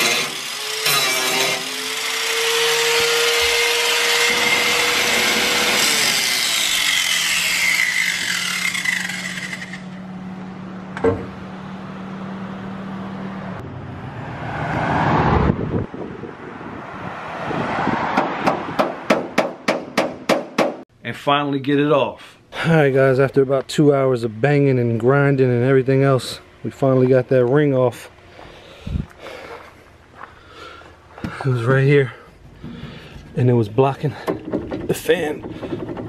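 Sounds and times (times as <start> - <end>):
angle grinder grinding steel: 0.0 - 10.0.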